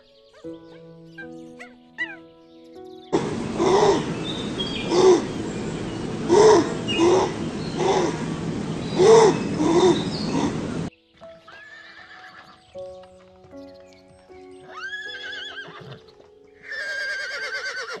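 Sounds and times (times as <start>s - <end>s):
soft background music: 0.0s - 18.0s
loud noisy sound: 3.2s - 10.9s
horse whinnying: 11.5s - 12.6s, 14.7s - 18.0s.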